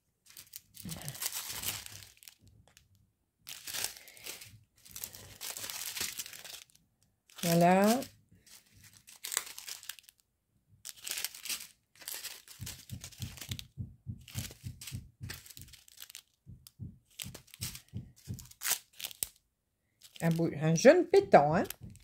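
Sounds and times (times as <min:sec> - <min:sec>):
plastic sachets crinkling: 0:00.2 - 0:10.2, 0:10.8 - 0:16.4, 0:17.0 - 0:22.0
soft handling knocks: 0:12.5 - 0:18.6, 0:21.1 - 0:22.0.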